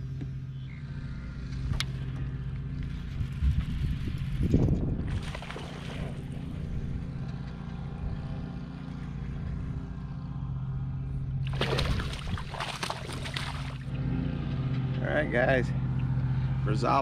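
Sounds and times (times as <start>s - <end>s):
steady low hum: 0.0s - 17.0s
fish splashing at surface: 5.1s - 6.2s, 11.4s - 13.9s.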